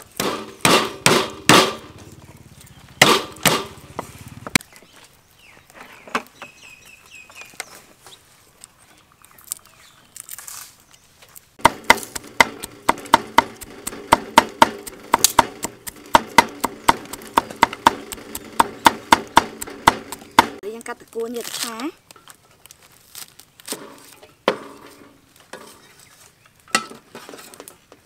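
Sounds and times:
sharp regular knocks: 3.0s - 4.1s, 11.6s - 20.6s.

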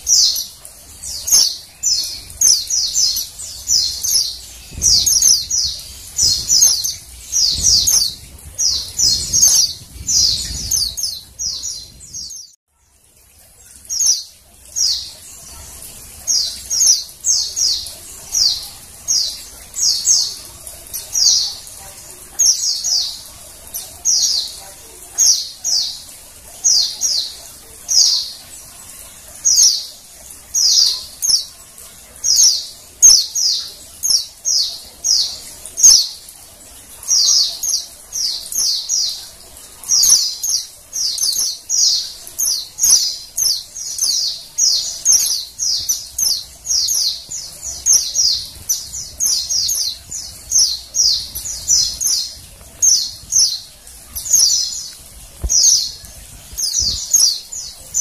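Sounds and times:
bird high chirps: 0.0s - 12.6s, 39.9s - 58.0s.

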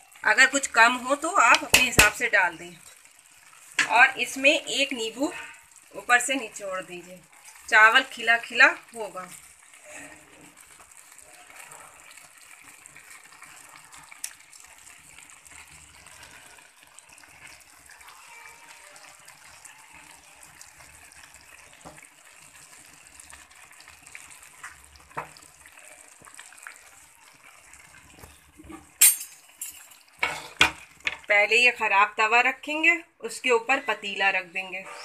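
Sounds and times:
water bubbling and hissing in pot: 0.0s - 31.4s.

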